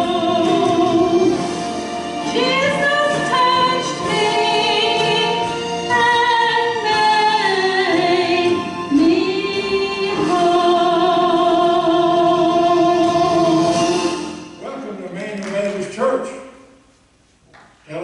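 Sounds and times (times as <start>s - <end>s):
woman singing into microphone: 2.2s - 14.2s.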